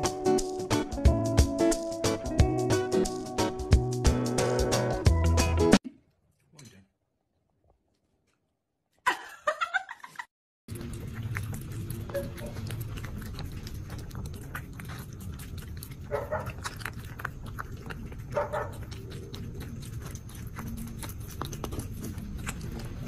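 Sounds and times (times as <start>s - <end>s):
cat chewing food: 10.7s - 23.0s
cat vocal sounds: 10.9s - 23.0s.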